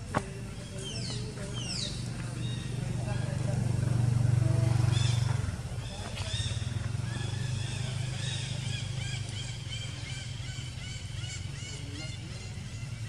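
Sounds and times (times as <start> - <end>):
high chirping calls: 0.5 - 3.4, 4.8 - 13.0.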